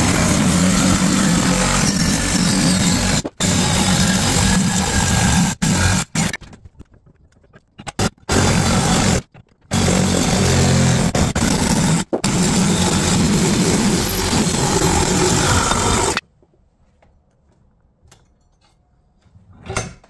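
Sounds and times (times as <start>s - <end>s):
reciprocating saw cutting metal: 0.0s - 6.4s, 8.0s - 16.2s.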